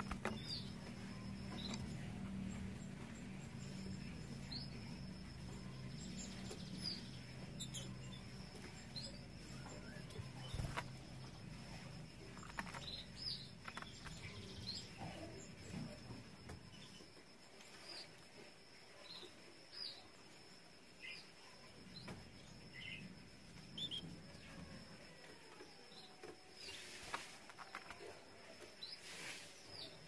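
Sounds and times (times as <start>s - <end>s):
canaries chirping: 0.0s - 18.2s.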